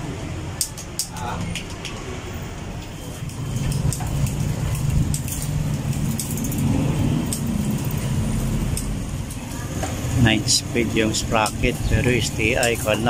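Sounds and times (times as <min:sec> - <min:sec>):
derailleur clicks and rattles: 0:00.6 - 0:10.0
bicycle chain whirring: 0:02.6 - 0:13.0.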